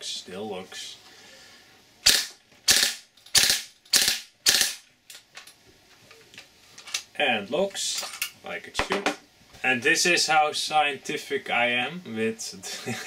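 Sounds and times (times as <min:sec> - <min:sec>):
airsoft gun firing bursts: 0:02.0 - 0:04.8.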